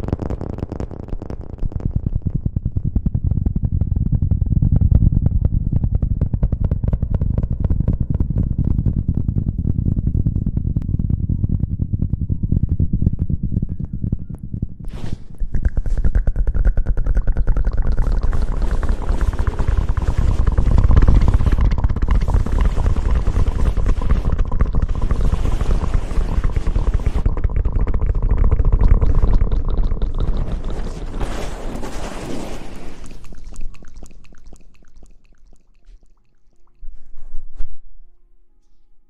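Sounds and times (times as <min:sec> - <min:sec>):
wet mouth crackling on microphone: 0:00.0 - 0:03.1, 0:14.5 - 0:37.3
low rumble from mic contact: 0:00.0 - 0:37.9.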